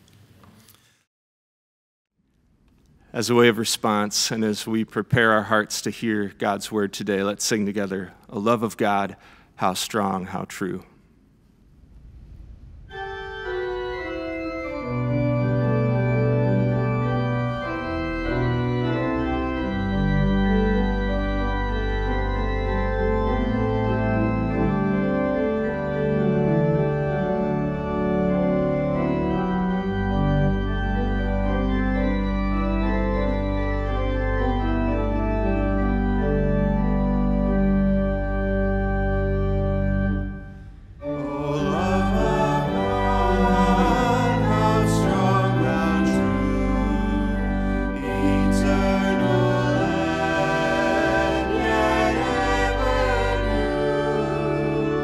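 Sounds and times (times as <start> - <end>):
organ playing sustained chords: 3.2 - 10.8, 12.9 - 55.0
deep organ pedal bass: 12.9 - 55.0.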